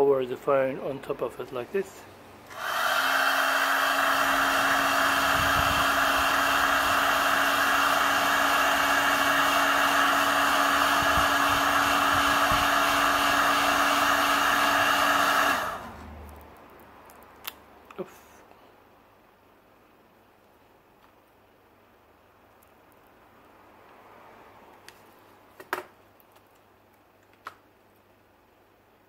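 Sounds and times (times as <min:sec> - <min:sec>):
heat gun fan humming: 0:01.8 - 0:16.2.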